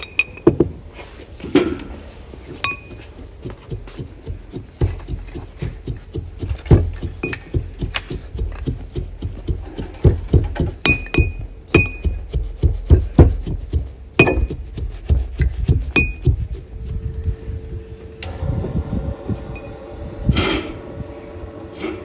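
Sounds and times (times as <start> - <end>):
pestle clinking against mortar: 2.6 - 16.6
pestle pounding in mortar: 2.7 - 16.9.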